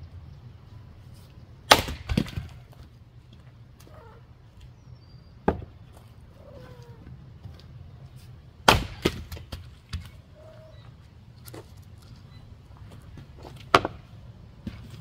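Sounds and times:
axe striking firewood: 1.7 - 2.8, 5.4 - 5.7, 8.6 - 10.1, 13.6 - 14.0.

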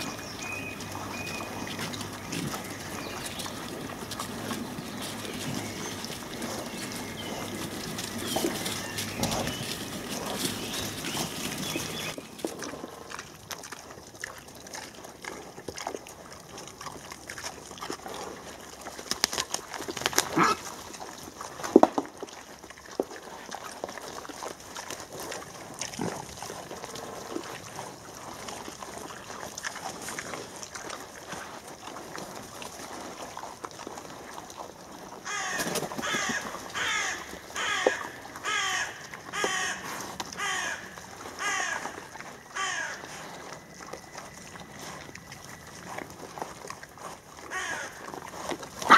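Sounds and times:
rustling of leaf litter and twigs: 0.0 - 48.9
boar harsh calls: 20.2 - 20.8, 35.2 - 43.3, 47.4 - 48.9.

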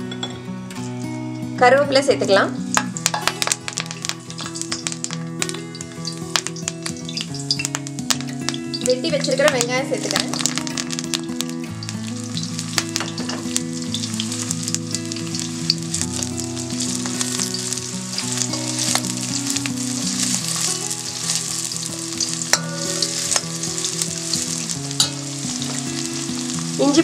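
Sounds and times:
shallots sizzling in oil: 0.0 - 27.0
metal spoon scraping a pan: 22.2 - 24.1, 24.9 - 25.8.

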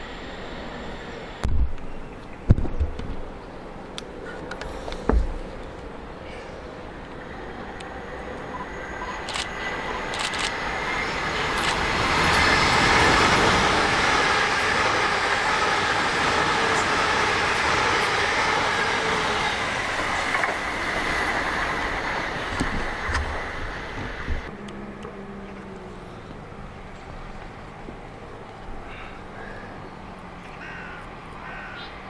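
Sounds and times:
train passing at speed: 0.0 - 2.1, 3.2 - 32.0
sharp clicks: 10.1 - 10.6.

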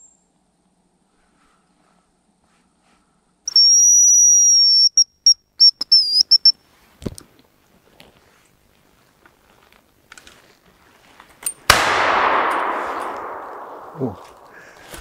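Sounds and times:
decoy whistle imitating bird call: 3.5 - 6.6.

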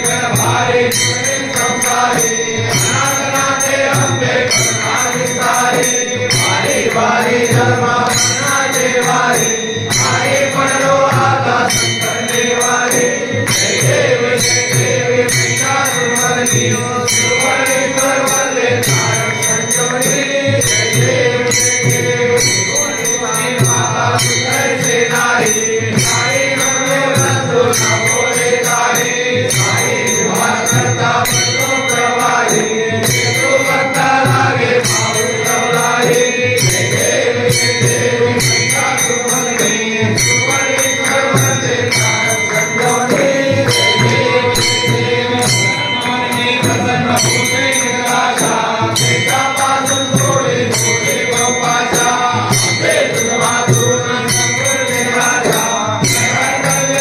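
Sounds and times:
steady percussion beat: 0.0 - 57.0
voices singing devotional song: 0.0 - 57.0.

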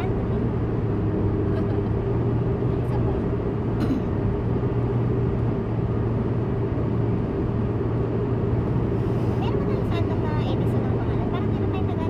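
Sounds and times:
car cabin road and engine drone: 0.0 - 12.0.

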